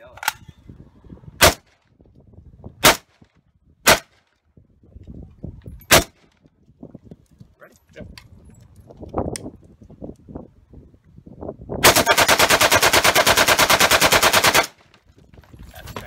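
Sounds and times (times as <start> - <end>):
rifle full-auto burst: 11.8 - 14.8.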